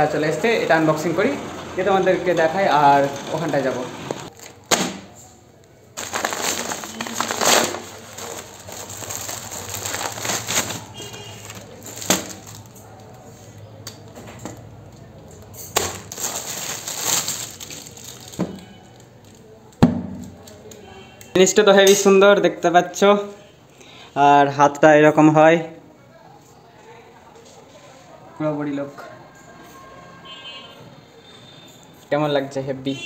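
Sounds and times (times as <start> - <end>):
plastic packaging crinkling: 4.3 - 5.0, 5.9 - 13.3, 15.4 - 19.6.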